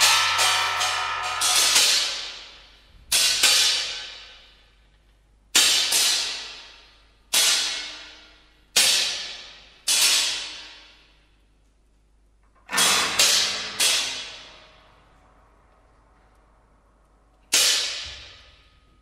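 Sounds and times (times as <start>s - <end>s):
metal percussion strikes ringing: 0.0s - 4.8s.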